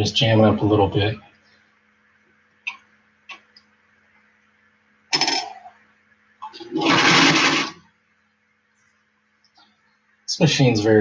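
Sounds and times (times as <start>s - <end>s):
sewing machine running: 6.7s - 7.8s.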